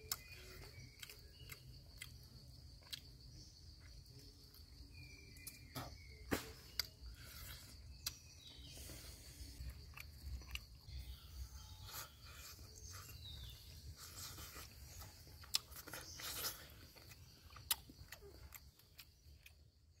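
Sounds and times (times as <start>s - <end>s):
person chewing fish: 0.0s - 3.2s, 9.4s - 11.0s, 11.8s - 20.0s.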